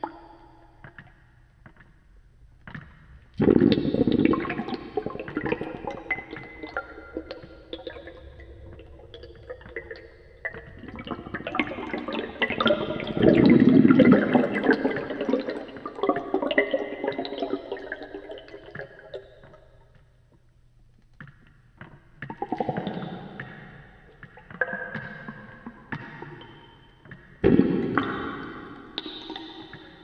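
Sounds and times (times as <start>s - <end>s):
air bubbling underwater: 3.4s - 19.2s, 27.4s - 30.0s.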